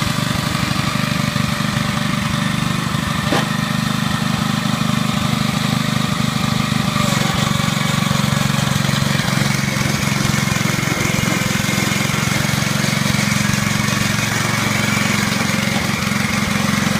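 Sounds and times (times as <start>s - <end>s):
small engine running steadily: 0.0s - 16.9s.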